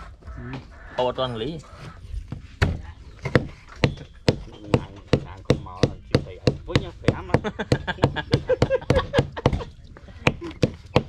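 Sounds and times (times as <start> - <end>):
knife chopping on wooden board: 10.2 - 11.0.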